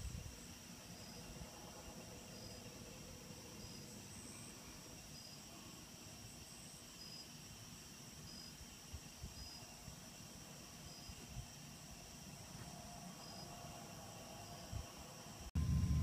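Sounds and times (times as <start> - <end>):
crickets trilling: 0.0 - 16.0
short insect chirp: 0.0 - 16.0
low background rumble: 15.5 - 16.0.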